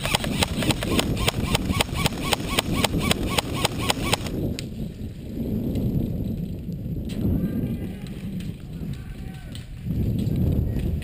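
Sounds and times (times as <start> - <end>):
airsoft rifle rapid shots: 0.0 - 4.4
wind rumble on microphone: 0.0 - 11.0.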